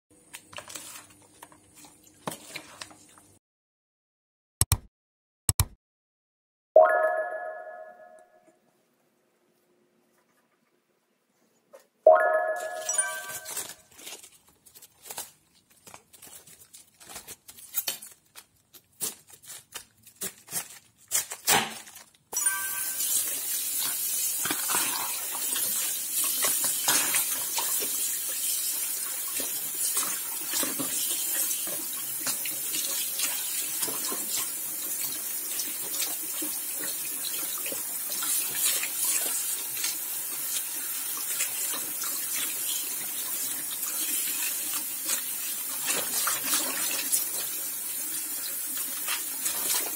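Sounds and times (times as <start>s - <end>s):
cabbage leaves tearing: 13.4s - 22.2s
tap water running: 22.4s - 49.9s.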